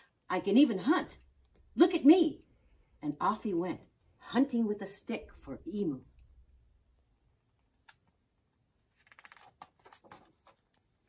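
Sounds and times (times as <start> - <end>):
book page turning: 8.8 - 11.0
paper rustling: 8.8 - 11.0.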